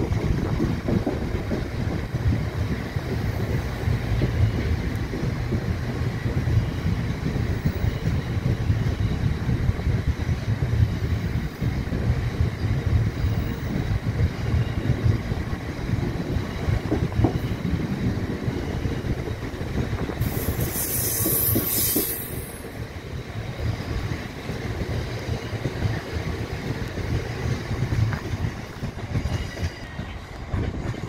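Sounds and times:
train wheels rumbling on rail: 0.0s - 31.0s.

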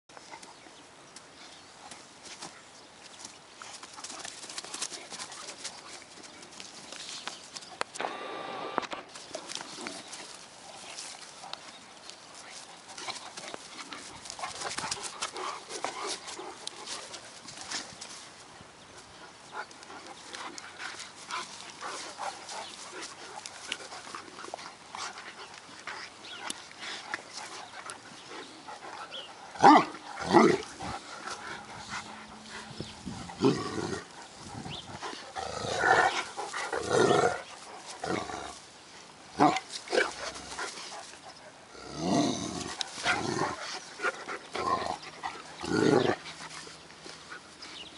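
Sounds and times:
dogs scuffling: 1.8s - 8.0s, 9.1s - 29.1s.

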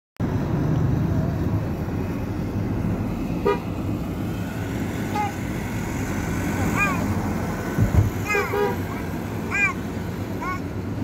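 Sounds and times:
car road and engine rumble: 0.2s - 11.0s
car horn toot: 3.4s - 3.7s, 8.3s - 8.8s.

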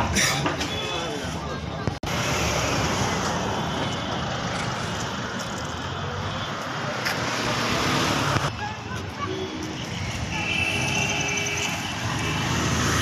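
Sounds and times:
wind and road noise in vehicle: 1.4s - 10.3s.

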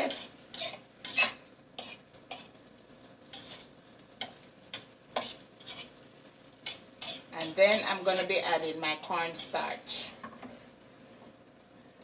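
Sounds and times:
metal utensil scraping a frying pan: 0.0s - 2.6s, 3.2s - 6.0s, 6.6s - 9.7s.

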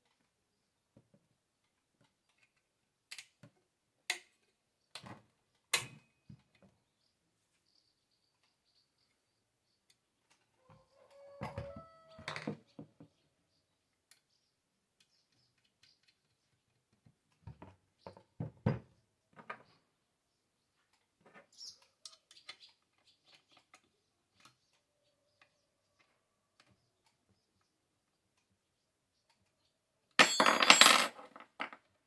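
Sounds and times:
small metal clicks and knocks: 1.1s - 6.7s.

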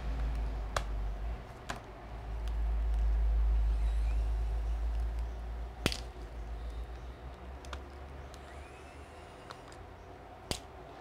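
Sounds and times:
small tools clicking and tapping: 4.8s - 8.6s.

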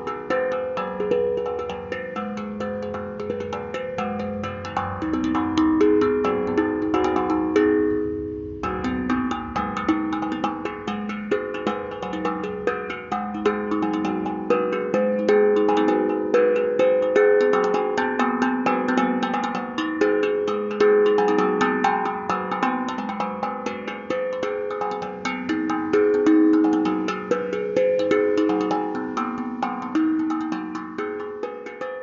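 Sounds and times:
steel tongue drum melody: 0.0s - 32.0s.

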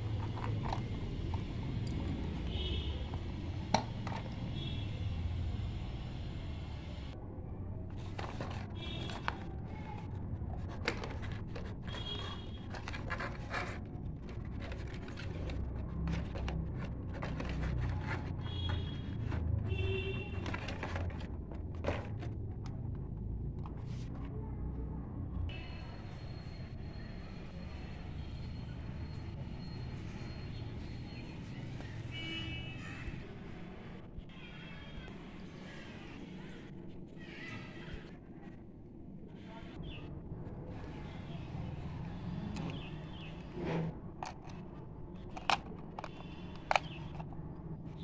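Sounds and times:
cardboard scraping and rustling: 8.0s - 22.4s
plastic clicks and knocks: 45.3s - 47.3s.

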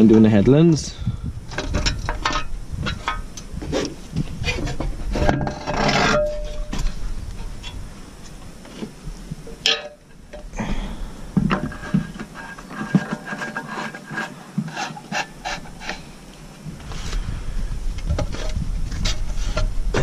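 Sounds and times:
metal scraping and rubbing: 1.5s - 7.8s, 11.0s - 16.2s.

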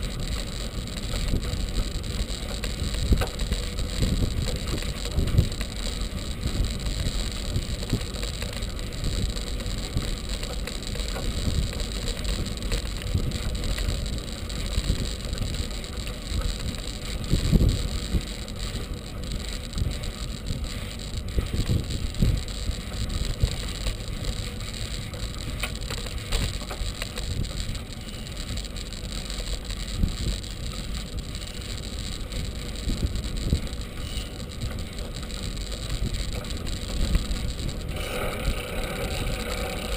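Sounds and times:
wind buffeting: 0.0s - 10.2s, 19.1s - 25.6s
bike rattles over bumps: 0.0s - 39.9s
low road rumble: 0.0s - 39.9s.

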